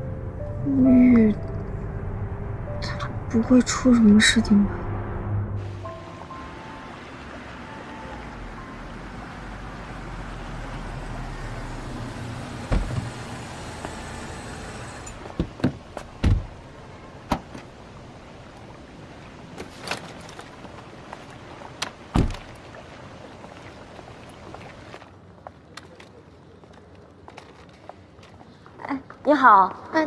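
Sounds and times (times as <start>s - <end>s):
car engine running: 8.5s - 15.9s
car doors shutting: 11.7s - 16.6s, 22.1s - 22.5s.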